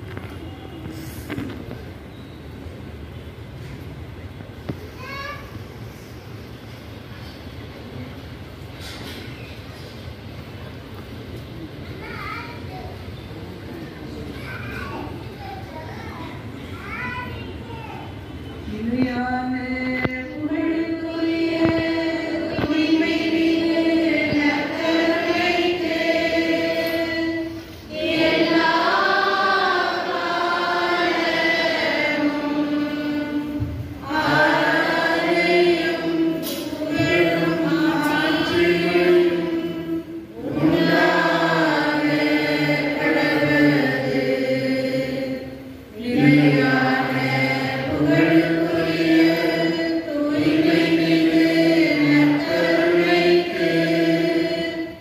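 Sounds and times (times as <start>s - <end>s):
group singing a hymn: 18.7s - 55.0s.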